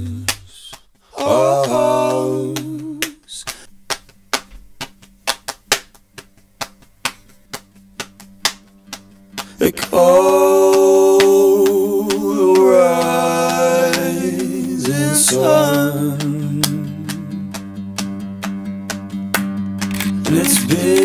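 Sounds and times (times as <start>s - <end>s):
person singing: 0.0s - 3.6s, 9.6s - 17.5s, 20.2s - 21.0s
finger snaps: 0.2s - 10.0s, 10.7s - 21.0s.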